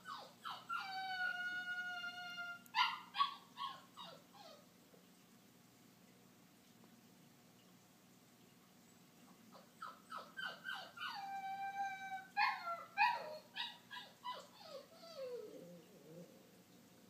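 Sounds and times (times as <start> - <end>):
puppy whining and crying: 0.0 - 4.7, 9.5 - 16.4.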